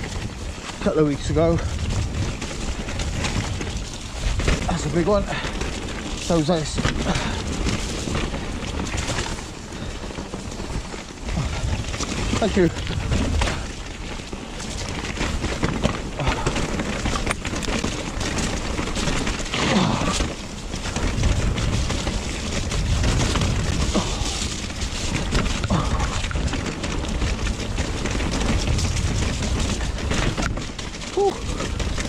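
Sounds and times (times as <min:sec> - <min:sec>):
bike knocks and rattles: 0:00.0 - 0:32.0
bike tyre and frame noise: 0:00.0 - 0:32.0
wind rumbling on microphone: 0:00.0 - 0:32.0.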